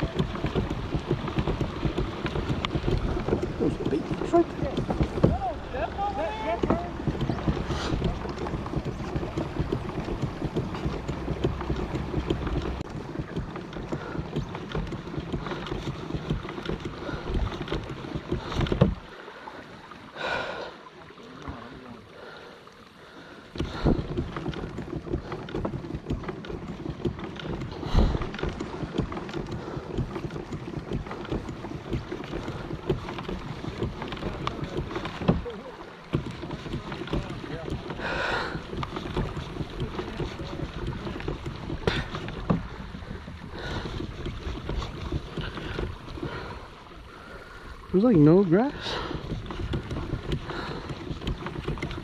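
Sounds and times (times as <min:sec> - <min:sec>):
wind buffeting microphone: 0:00.0 - 0:19.2, 0:23.5 - 0:52.0
boat knocks: 0:00.0 - 0:52.0
water rushing along hull: 0:00.0 - 0:52.0.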